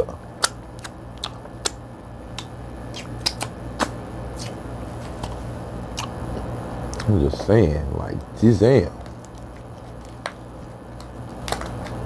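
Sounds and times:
crab shell cracking: 0.4s - 4.5s, 9.0s - 12.0s.

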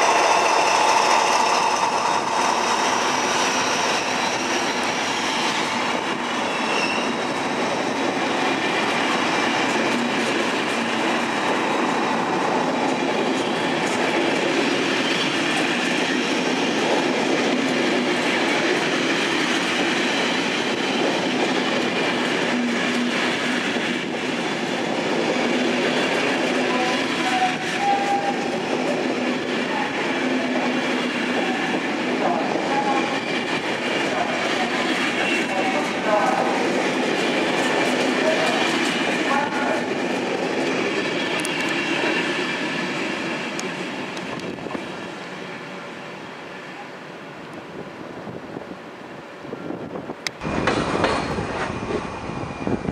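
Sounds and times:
train wheels rumbling: 0.0s - 46.8s, 49.6s - 52.9s
click over rail joints: 50.2s - 51.7s.

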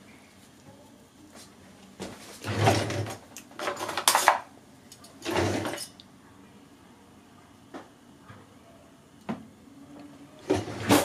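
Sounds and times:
metal utensils clattering: 2.5s - 4.4s, 5.2s - 6.0s.

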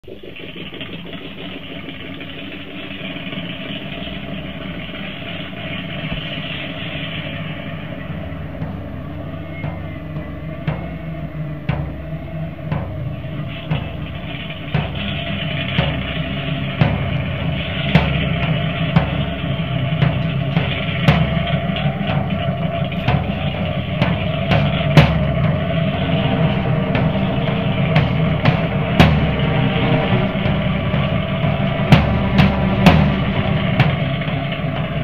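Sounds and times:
drum kit beat: 0.0s - 35.0s
rock music: 24.6s - 34.8s.

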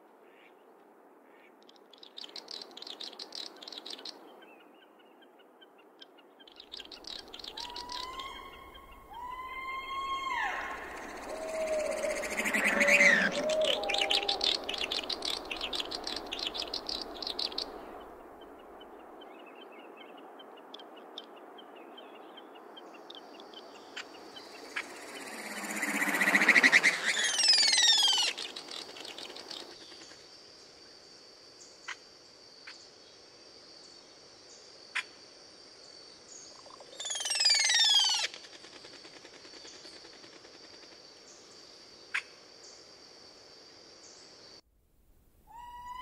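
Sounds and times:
birds chattering trills: 6.8s - 17.9s
drawn-out rising bird calls: 7.1s - 18.0s, 24.4s - 29.8s, 37.0s - 38.3s.

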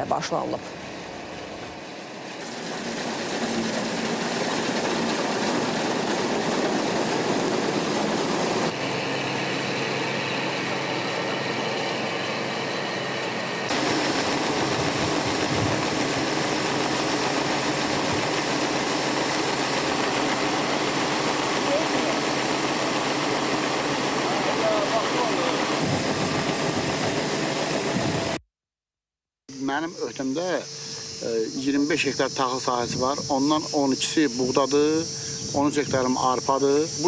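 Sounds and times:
combine harvester engine droning: 0.0s - 28.4s.

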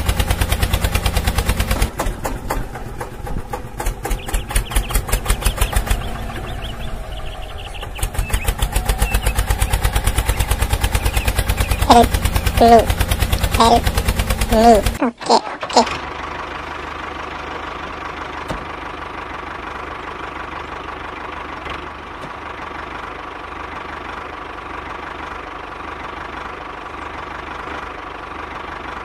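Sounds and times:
model engine chugging with whine: 0.0s - 15.0s.

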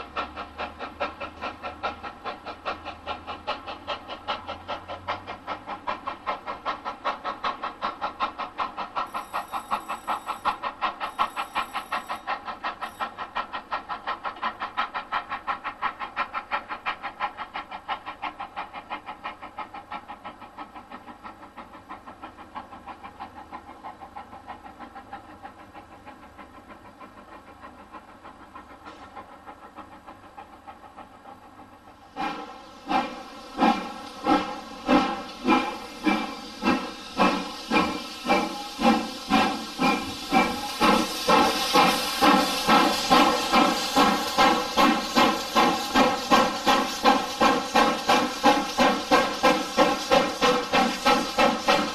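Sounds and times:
steam locomotive chimney exhaust beating: 0.0s - 51.9s.

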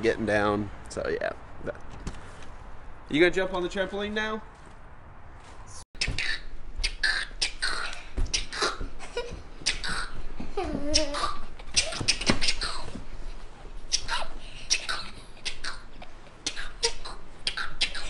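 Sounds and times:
boy making hisses and clicks: 6.0s - 8.8s, 9.6s - 10.2s, 10.9s - 13.0s, 13.8s - 18.0s.

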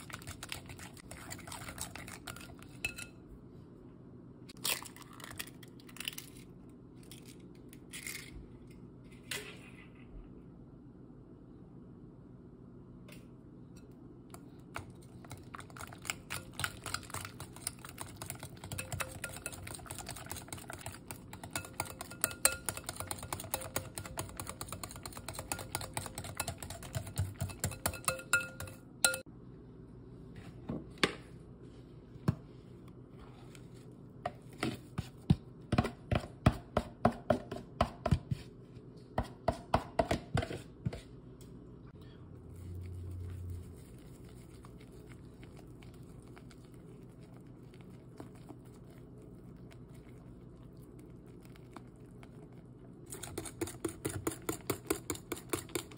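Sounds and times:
whisk clicking against glass bowl: 16.1s - 29.2s.

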